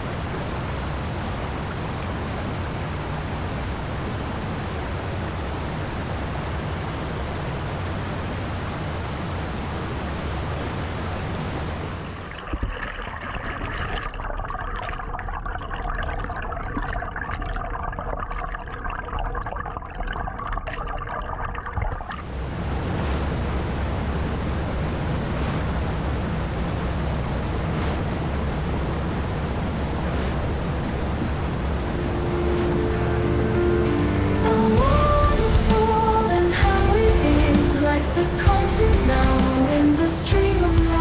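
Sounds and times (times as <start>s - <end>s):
water rushing over stones: 11.6s - 32.0s
underwater bubbling and clicks: 12.0s - 22.3s
water spilling over weir: 12.0s - 31.8s.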